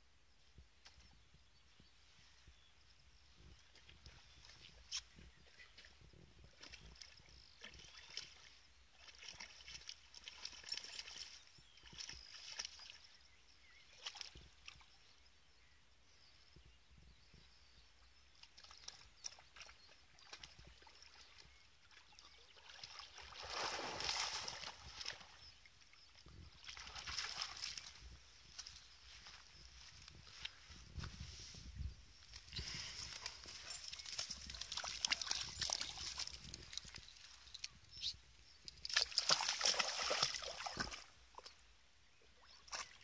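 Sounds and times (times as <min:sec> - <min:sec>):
water sloshing and lapping: 0:06.5 - 0:13.1, 0:18.4 - 0:30.6, 0:32.6 - 0:37.8, 0:38.7 - 0:41.6, 0:42.4 - 0:43.0
dog splashing in water: 0:22.6 - 0:25.2, 0:33.4 - 0:37.0, 0:38.8 - 0:41.1.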